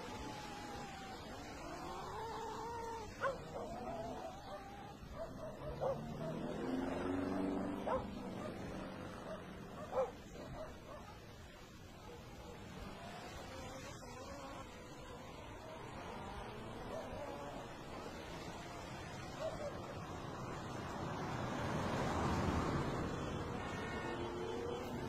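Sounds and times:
sharp yelps: 0.2 - 6.5, 9.2 - 11.2.

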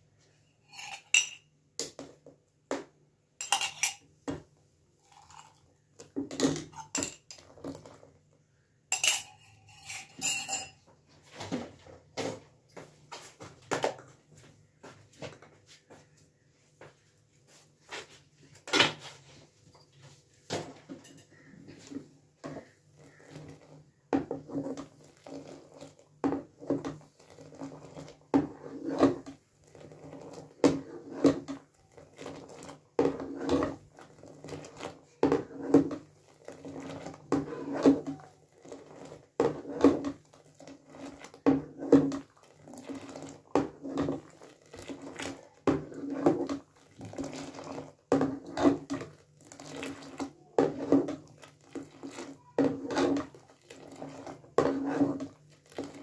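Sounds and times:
tea splashing: 5.0 - 8.0, 27.0 - 56.0
ladle clinking against pot: 8.9 - 10.8.

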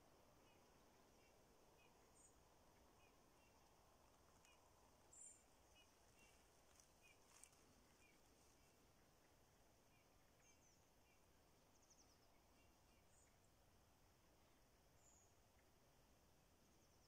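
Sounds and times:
faint high bird chirps: 4.4 - 13.6.

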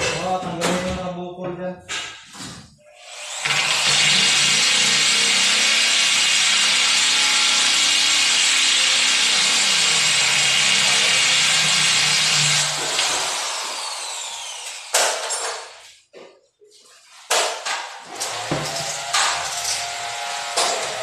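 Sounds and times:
electric drill drilling: 2.9 - 15.5, 18.1 - 21.0.

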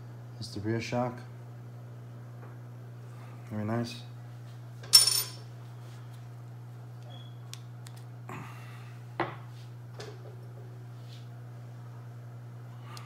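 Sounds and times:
metal parts clinking: 4.9 - 5.4.

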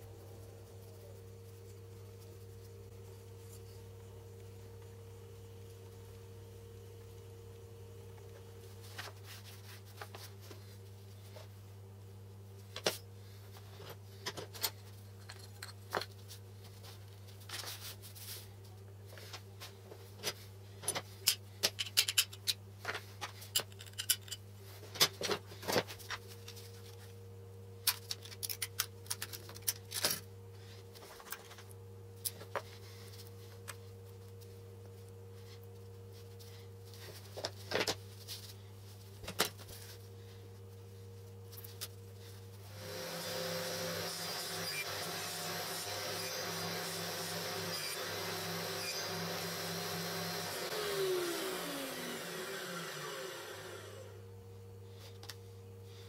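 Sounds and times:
low steady hum: 0.0 - 56.0
small parts tapping and clacking: 20.8 - 22.6, 23.2 - 24.4, 27.8 - 30.2.

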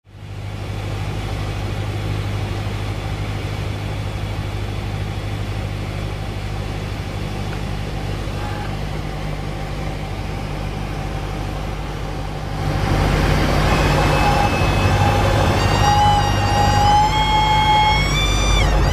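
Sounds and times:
airplane engine and propeller: 0.1 - 18.9
stall warning horn whistle: 13.2 - 18.9.

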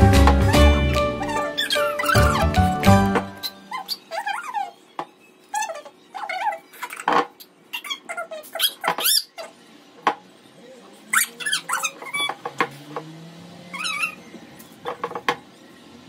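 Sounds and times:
pet whining: 0.3 - 4.9, 5.5 - 9.6, 10.7 - 12.4, 13.6 - 14.8.

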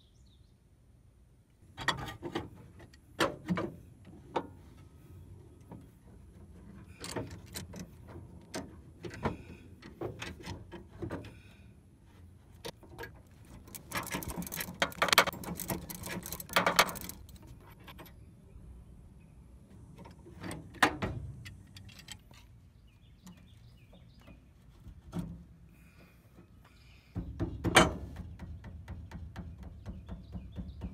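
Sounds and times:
metal tools clinking: 12.9 - 18.2.

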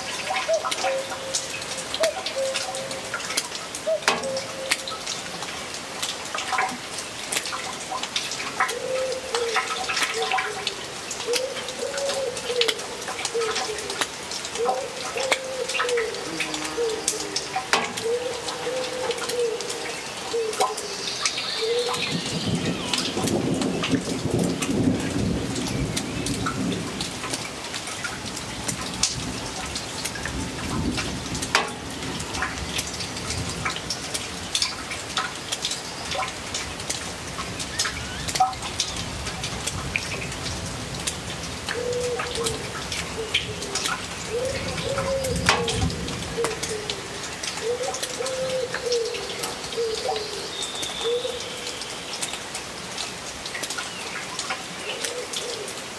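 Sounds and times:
rain pattering and dripping: 0.0 - 55.9
bird calling: 0.3 - 3.1, 3.8 - 5.0, 14.6 - 23.2, 47.6 - 51.8
low rumble of thunder: 21.9 - 27.5, 28.4 - 33.8.

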